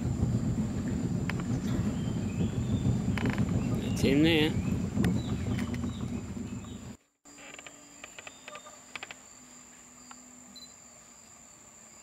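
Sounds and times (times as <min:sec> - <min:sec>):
low rumble: 0:00.0 - 0:07.0
insects whining: 0:00.0 - 0:12.0.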